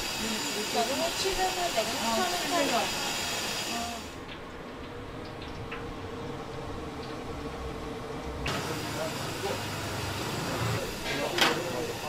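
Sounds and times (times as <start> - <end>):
hiss: 0.0 - 4.2, 8.5 - 12.0
voices: 0.2 - 4.2, 8.2 - 12.0.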